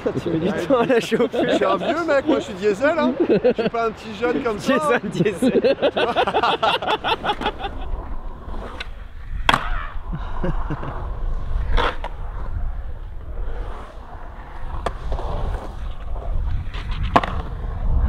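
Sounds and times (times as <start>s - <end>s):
skateboard wheels rolling on concrete: 0.0s - 18.0s
skateboard clacking on concrete: 14.7s - 17.5s.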